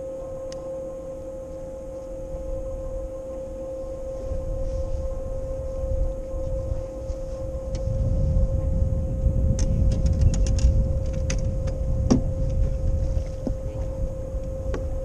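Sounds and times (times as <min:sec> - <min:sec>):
electric trolling motor whine: 0:00.0 - 0:15.0
wind rumble on microphone: 0:00.0 - 0:15.0.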